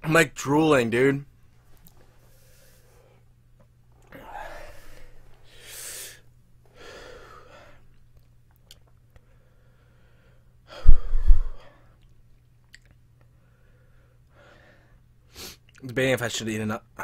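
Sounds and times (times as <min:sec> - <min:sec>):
man breathing hard: 0:04.1 - 0:07.9, 0:09.2 - 0:12.0, 0:13.4 - 0:15.6
forceful blow into microphone: 0:10.8 - 0:11.6.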